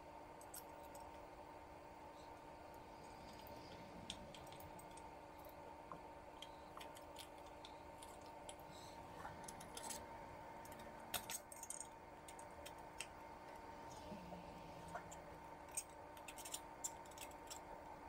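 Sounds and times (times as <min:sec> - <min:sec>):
faint steady hum: 0:00.0 - 0:18.0
small parts clicking into metal housing: 0:10.7 - 0:13.1.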